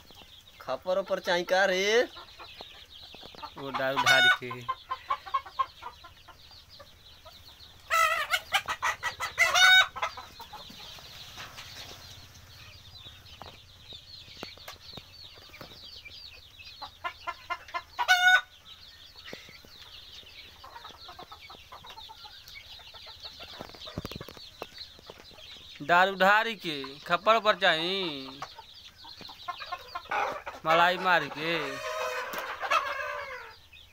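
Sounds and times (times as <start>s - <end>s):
chickens clucking: 0.0s - 33.9s
rooster crowing: 31.4s - 33.6s.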